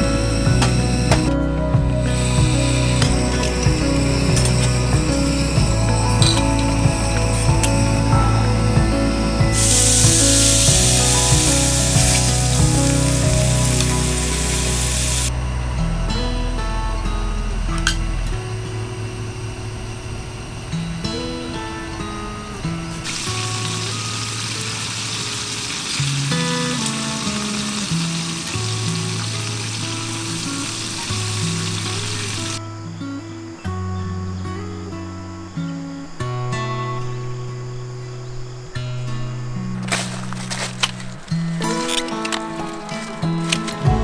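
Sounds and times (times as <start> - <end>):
soft background music: 0.0 - 44.0
steak sizzling in a pan: 9.5 - 15.3, 23.0 - 32.6.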